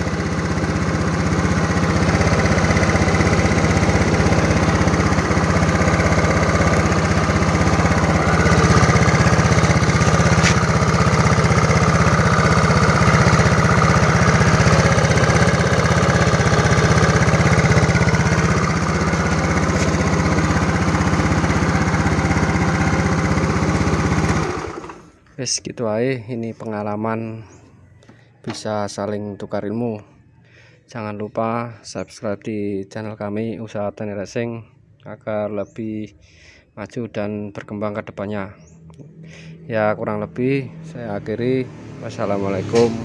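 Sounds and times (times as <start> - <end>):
scooter engine running: 0.0 - 25.2, 40.7 - 43.0.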